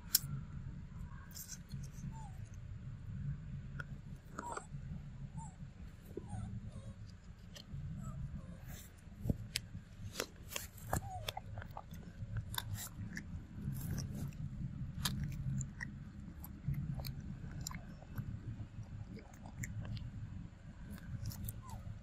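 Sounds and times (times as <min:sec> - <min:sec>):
monkey chewing mango: 0:08.6 - 0:20.1, 0:20.8 - 0:22.0.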